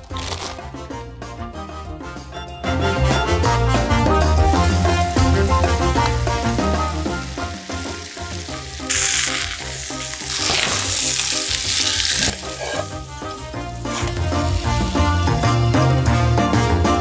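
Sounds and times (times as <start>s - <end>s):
background music: 0.0s - 17.0s
food sizzling in a pan: 4.2s - 16.0s.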